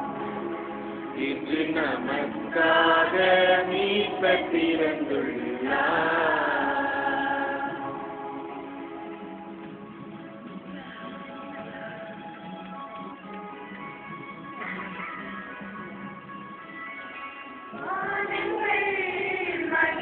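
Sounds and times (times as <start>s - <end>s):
women singing a hymn: 1.2s - 9.4s, 17.7s - 20.0s.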